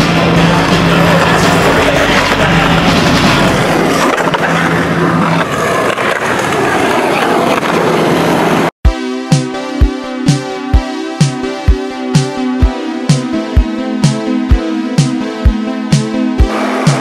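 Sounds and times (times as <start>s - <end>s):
electronic music with sharp beat: 0.0s - 4.4s, 8.8s - 17.0s
loud music with low held note: 0.0s - 5.0s, 8.8s - 17.0s.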